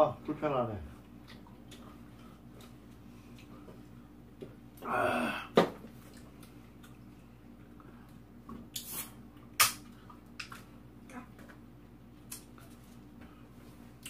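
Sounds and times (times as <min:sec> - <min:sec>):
person sighing: 0:04.8 - 0:05.6.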